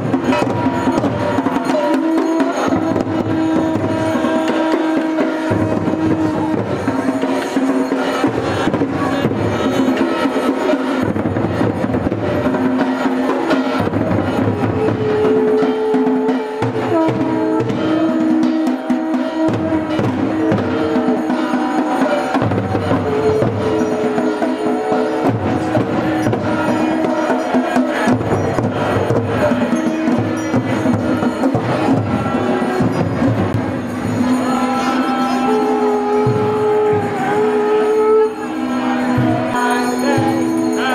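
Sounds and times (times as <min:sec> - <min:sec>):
drums beating: 0:00.0 - 0:40.9
conch shells blowing: 0:00.1 - 0:08.3.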